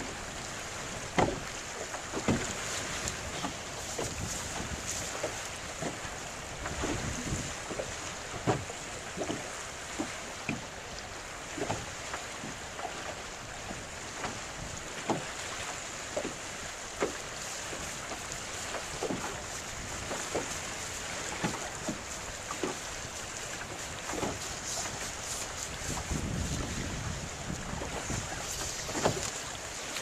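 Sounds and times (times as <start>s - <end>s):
water slapping against boat hull: 0.0s - 30.0s
wind buffeting microphone: 2.2s - 8.7s, 19.0s - 29.9s.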